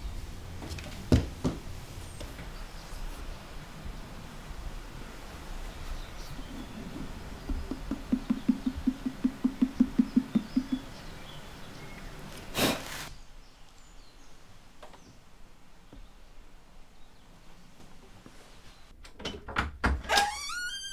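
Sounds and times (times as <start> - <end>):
hand knocking on clay jar: 7.0 - 10.9.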